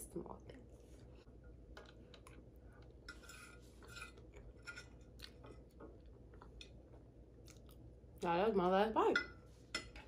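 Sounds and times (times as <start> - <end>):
fork scraping on a plate: 3.0 - 5.2.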